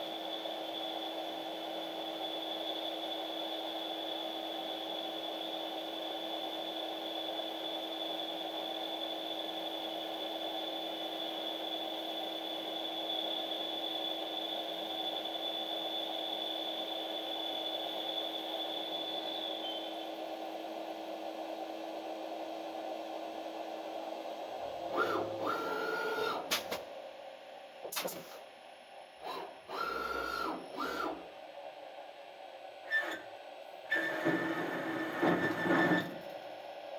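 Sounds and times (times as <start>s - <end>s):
lathe high whine: 0.0s - 26.5s, 29.2s - 36.9s
mechanical whir: 24.6s - 26.8s, 29.2s - 31.3s, 32.8s - 36.4s.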